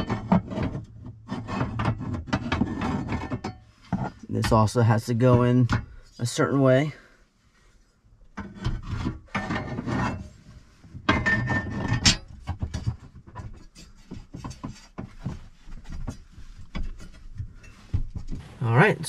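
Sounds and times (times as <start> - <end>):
metal bracket scraping in metal safe: 8.4 - 10.4.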